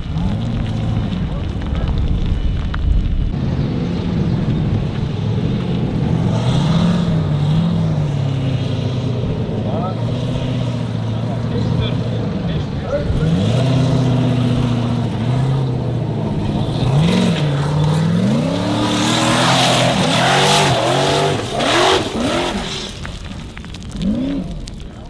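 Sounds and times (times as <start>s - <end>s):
tyres flinging dirt and stones: 0.0s - 3.5s, 13.0s - 25.0s
buggy engine revving hard: 3.4s - 22.9s.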